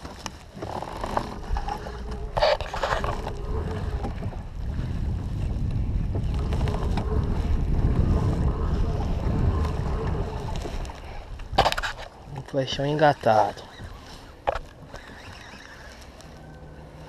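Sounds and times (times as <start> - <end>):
wind buffeting microphone: 0.0 - 17.0
low rumble: 1.0 - 12.4.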